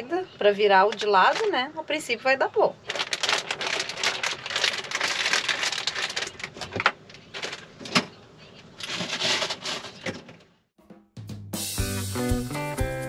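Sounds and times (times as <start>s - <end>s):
plastic packaging crinkling: 0.8s - 1.6s, 2.7s - 8.1s, 8.8s - 10.2s.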